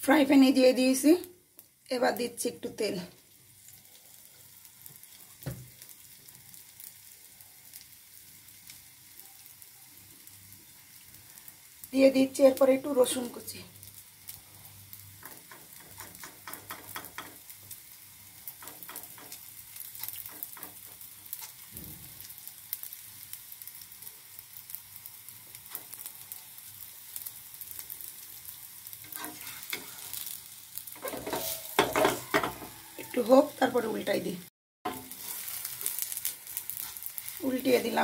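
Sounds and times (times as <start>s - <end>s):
oil sizzling and crackling: 0.0s - 38.0s
wooden spatula scraping pan: 29.1s - 30.2s, 31.0s - 33.5s.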